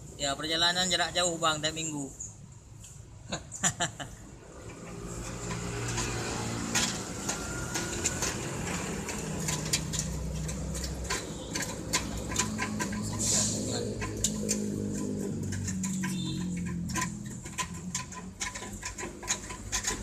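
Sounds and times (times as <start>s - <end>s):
hand tool clicking on metal pipe: 4.6s - 20.0s.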